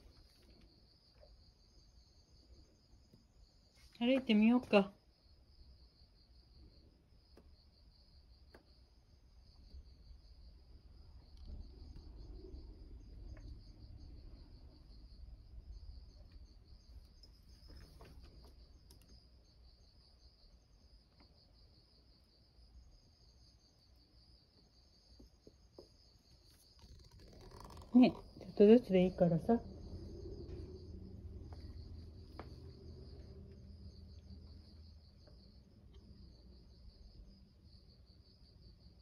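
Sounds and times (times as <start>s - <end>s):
insects chirping: 0.0s - 39.0s
low rumble: 28.1s - 34.2s.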